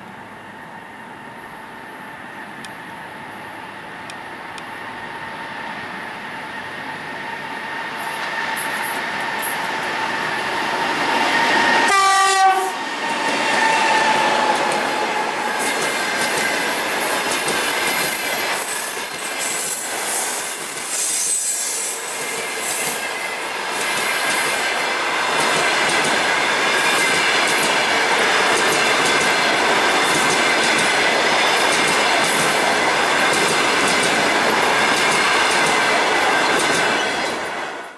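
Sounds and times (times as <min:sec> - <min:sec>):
electric locomotive whine: 0:00.0 - 0:37.9
train wheels rumbling on rails: 0:00.0 - 0:37.9
train horn blast: 0:11.8 - 0:12.9.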